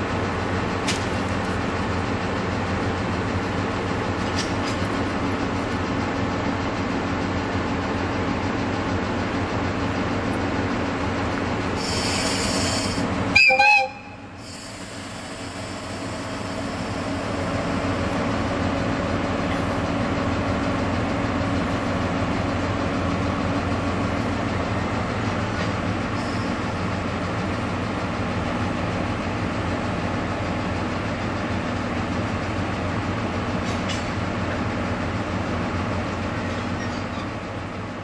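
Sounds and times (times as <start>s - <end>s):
diesel locomotive engine running: 0.0s - 38.0s
short air hiss: 11.8s - 13.1s, 14.4s - 16.8s
locomotive horn blast: 13.3s - 14.3s.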